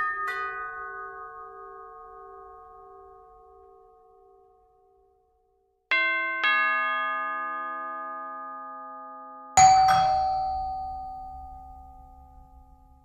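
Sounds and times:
two-note doorbell chime: 6.0s - 13.0s.

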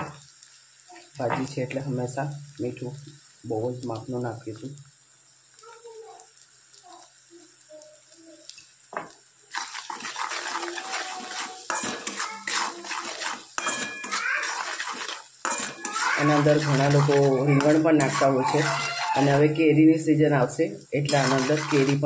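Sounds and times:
metal spatula scraping pan: 9.5s - 19.6s, 21.0s - 22.0s.

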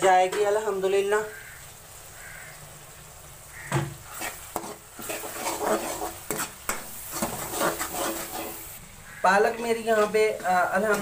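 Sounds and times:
paste sizzling: 0.0s - 11.0s
spoon scraping a pan: 3.6s - 8.8s.

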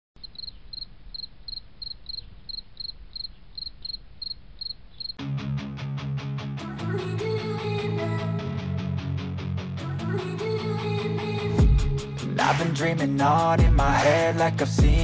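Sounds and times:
cricket chirping: 0.2s - 5.2s
guitar and bass music: 5.2s - 15.0s.

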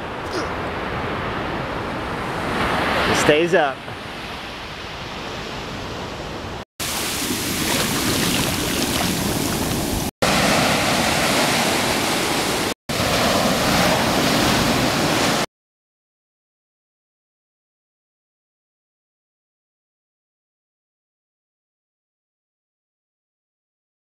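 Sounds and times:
ocean surf breaking: 0.1s - 15.5s
wind on microphone: 4.0s - 10.1s.

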